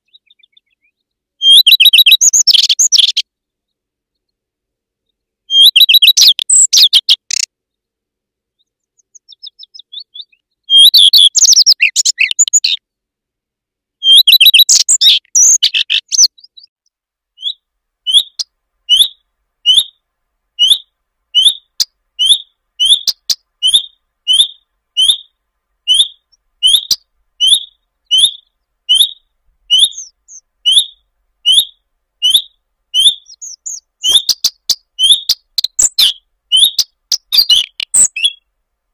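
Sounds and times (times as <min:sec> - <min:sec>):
bird short calls: 0:00.0 - 0:03.2, 0:09.1 - 0:12.8, 0:17.4 - 0:20.0, 0:20.6 - 0:38.4
redstart warbling song: 0:00.0 - 0:04.4, 0:05.0 - 0:07.8, 0:08.5 - 0:12.8, 0:14.0 - 0:16.7, 0:17.4 - 0:20.0, 0:20.6 - 0:38.5.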